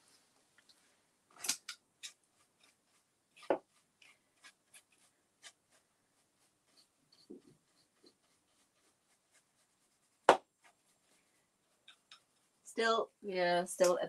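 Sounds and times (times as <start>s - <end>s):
paintbrush scratching metal: 2.0s - 12.9s.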